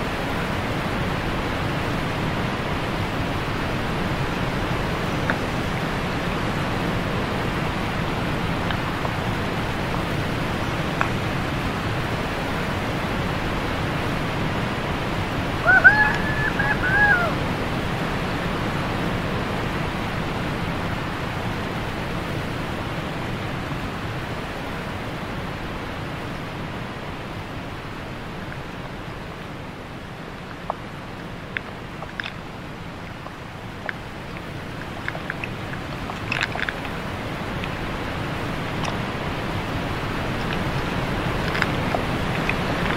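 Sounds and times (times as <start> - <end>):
waterfall rushing: 0.0 - 42.9
high-pitched call: 15.6 - 17.4.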